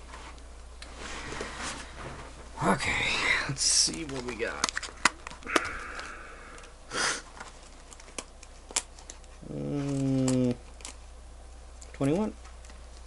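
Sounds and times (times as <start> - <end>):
low vocal hum: 5.4 - 6.8, 9.4 - 10.7.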